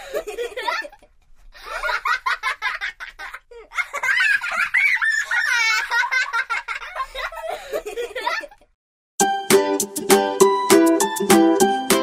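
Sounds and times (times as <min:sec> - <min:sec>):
young children laughing: 0:00.0 - 0:08.8.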